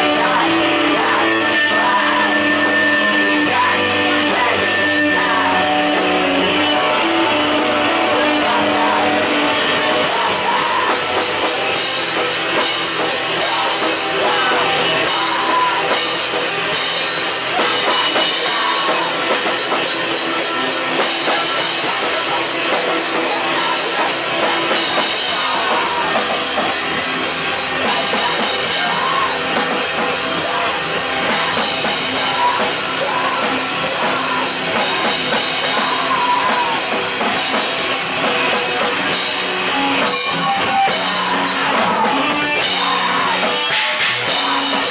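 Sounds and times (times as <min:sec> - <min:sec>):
drums and cymbals: 0:00.0 - 0:44.9
electric guitars: 0:00.0 - 0:44.9.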